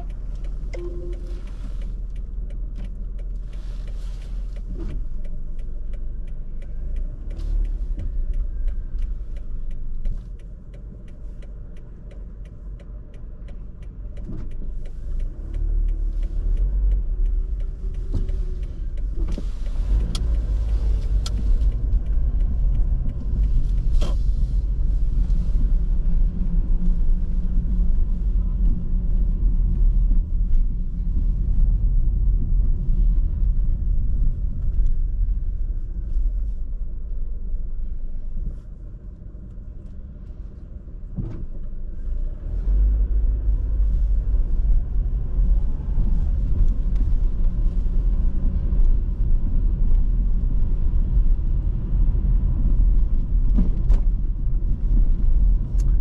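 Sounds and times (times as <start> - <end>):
regular ticking: 0.0 - 26.8
car engine and road rumble: 0.0 - 56.0.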